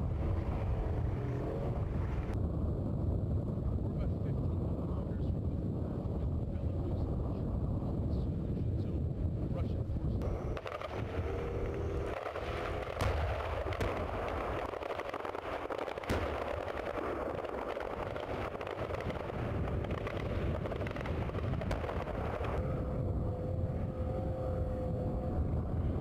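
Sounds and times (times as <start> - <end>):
constant rushing noise: 0.0 - 26.0
gunshots and blasts: 10.5 - 22.6.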